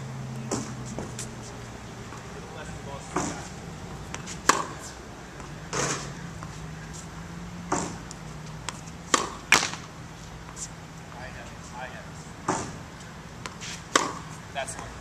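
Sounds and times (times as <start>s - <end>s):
racket hitting tennis ball: 0.5s - 1.4s, 3.1s - 7.1s, 7.7s - 10.7s, 12.4s - 14.9s
scuffing swishes on court: 0.5s - 1.7s.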